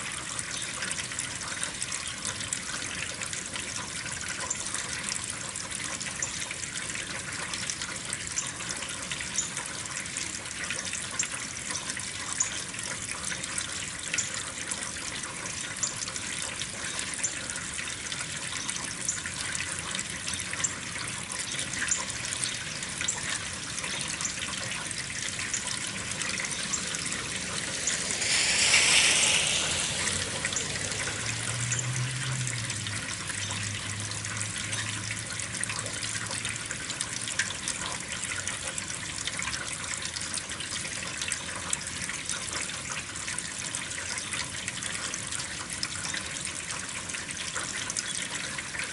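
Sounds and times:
dripping ticks: 0.0s - 28.8s, 29.4s - 48.9s
rain falling: 0.0s - 44.0s
rushing sound: 24.2s - 33.7s
low hum: 24.3s - 34.2s.

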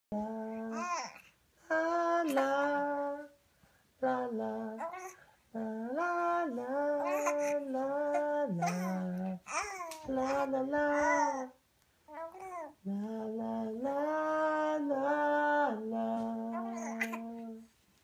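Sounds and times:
baby cooing: 0.5s - 1.2s, 4.8s - 5.2s, 7.0s - 12.8s, 16.5s - 17.5s.

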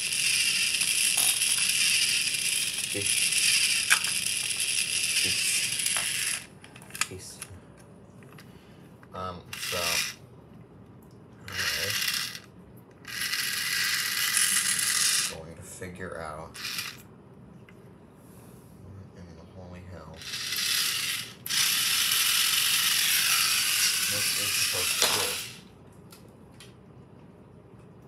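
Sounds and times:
toy motor whirring rattle: 0.0s - 7.4s, 9.5s - 10.2s, 11.5s - 15.5s, 16.6s - 17.0s, 20.2s - 25.7s.

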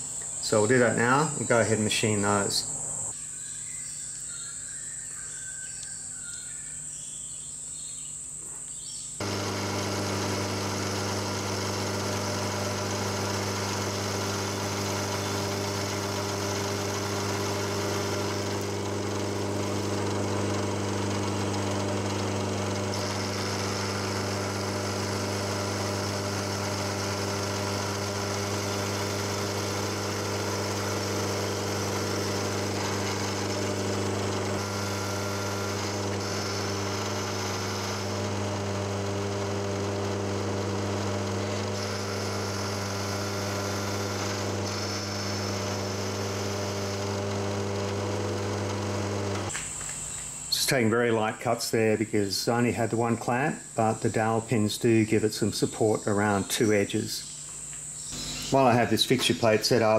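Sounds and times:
milling machine cutting steel: 9.2s - 49.6s.

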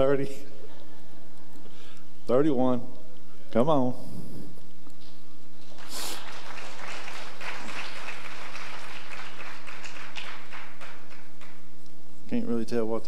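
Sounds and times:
congregation applauding: 5.6s - 11.8s.

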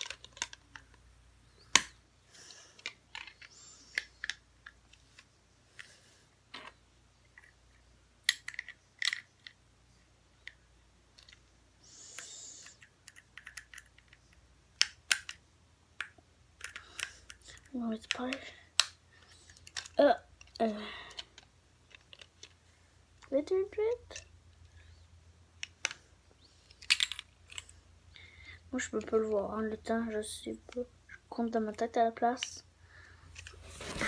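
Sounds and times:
plastic bricks clicking: 0.0s - 1.0s, 2.8s - 5.9s, 8.2s - 9.6s, 12.1s - 15.4s, 16.0s - 22.6s, 26.6s - 27.7s.

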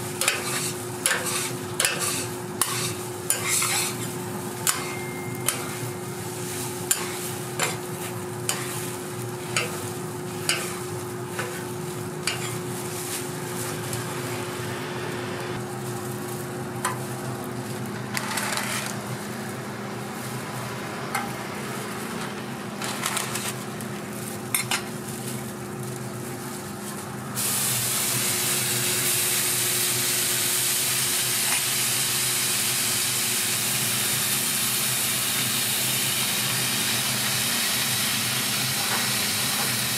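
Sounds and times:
bacon sizzling on griddle: 0.0s - 14.2s, 22.7s - 39.9s
metal spatula scraping griddle: 0.2s - 13.9s, 18.1s - 19.0s, 22.8s - 23.6s.

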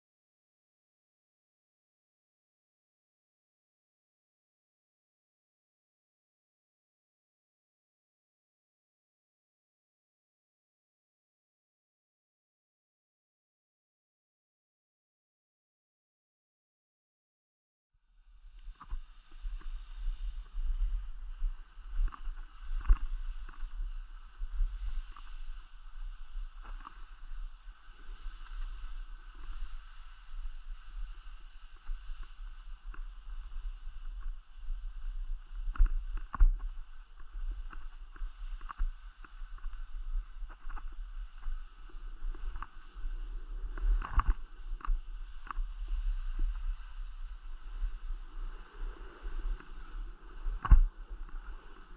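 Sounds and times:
wind rumble on microphone: 18.0s - 51.9s
skis scraping over snow: 18.8s - 51.9s.

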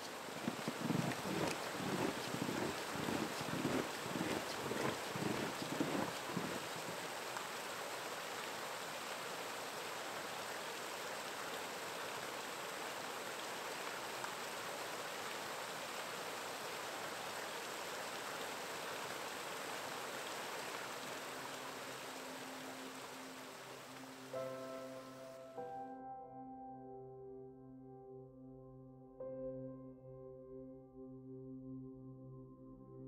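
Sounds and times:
stream water rushing: 0.0s - 25.3s.

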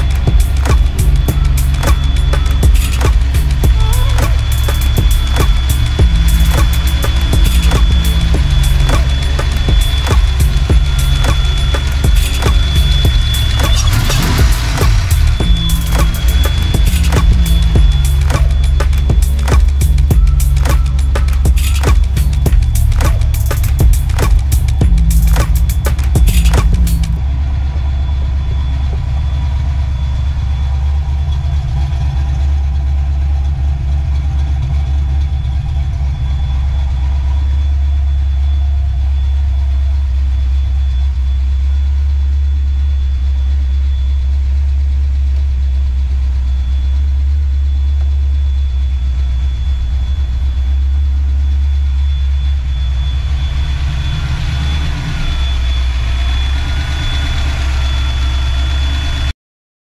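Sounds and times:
engine idling: 0.0s - 59.3s
faint high tone: 0.9s - 25.9s.

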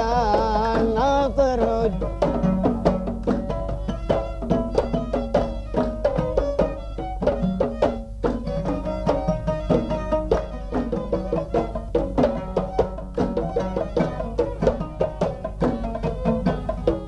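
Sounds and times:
hand drums: 0.0s - 17.0s
oud: 0.0s - 17.0s
violin: 0.0s - 17.0s.

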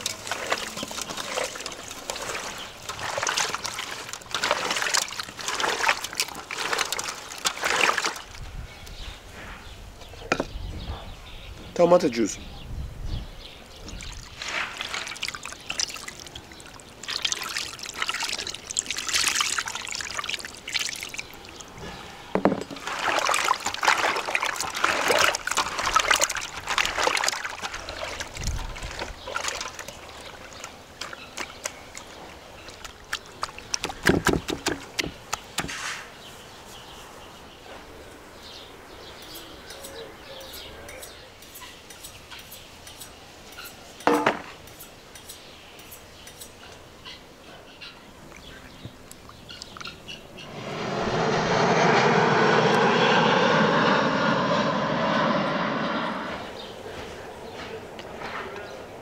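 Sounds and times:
wet squelching and sloshing: 0.0s - 8.4s, 14.0s - 21.6s, 22.8s - 34.1s
juice pouring into a bowl: 14.0s - 21.7s, 22.8s - 28.2s.

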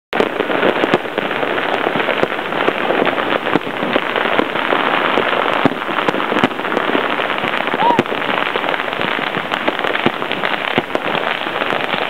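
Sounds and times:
firecrackers crackling: 0.1s - 12.0s
firework bangs: 0.1s - 12.0s.

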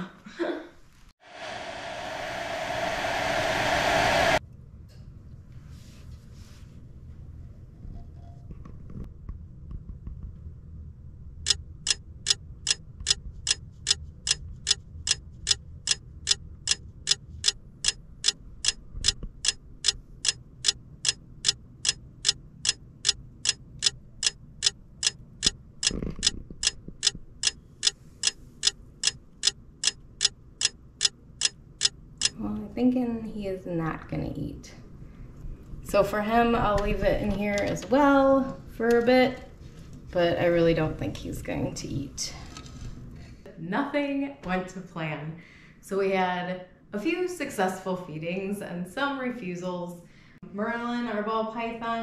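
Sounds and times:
clock ticking: 11.5s - 32.4s.

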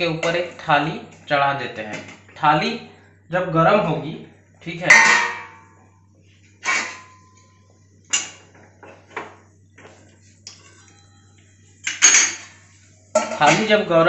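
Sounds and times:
low steady hum: 0.0s - 14.0s
metal utensils clattering: 4.9s - 5.6s, 6.6s - 7.4s, 11.8s - 12.6s, 13.2s - 13.8s.

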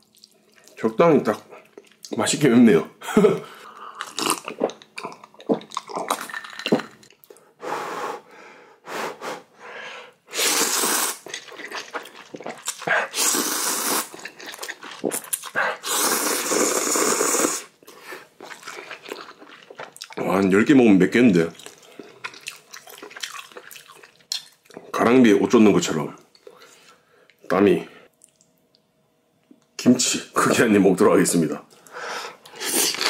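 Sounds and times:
wet chewing sounds: 3.8s - 7.4s, 11.1s - 20.3s, 21.6s - 24.9s, 28.1s - 28.8s
loud noodle slurps: 10.3s - 17.7s.

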